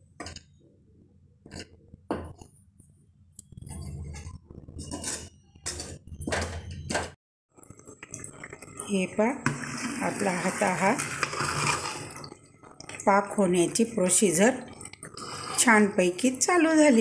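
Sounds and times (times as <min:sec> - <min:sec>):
spoon stirring and clinking in metal pot: 0:03.7 - 0:07.1.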